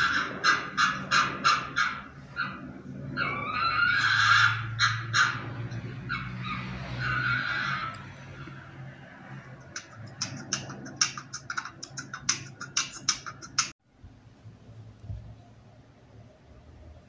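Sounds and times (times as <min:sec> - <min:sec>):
sharp clicks or scratches: 0:09.4 - 0:13.8.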